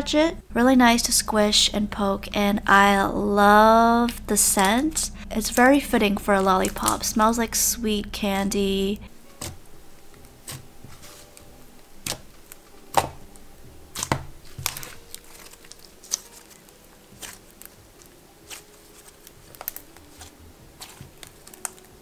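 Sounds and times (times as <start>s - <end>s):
slime squishing with wet pops: 4.0s - 7.3s, 9.4s - 22.0s.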